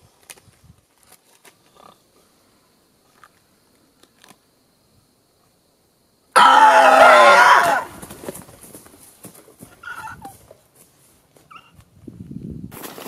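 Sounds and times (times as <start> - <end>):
faint ticks and rustles: 0.0 - 4.6, 8.0 - 12.4
person screaming: 6.4 - 8.0.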